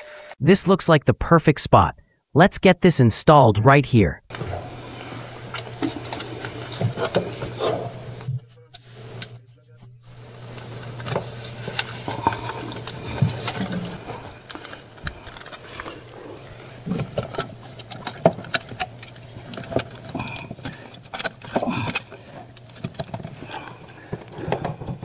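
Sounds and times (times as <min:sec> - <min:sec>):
steady low hum: 0:04.3 - 0:25.0.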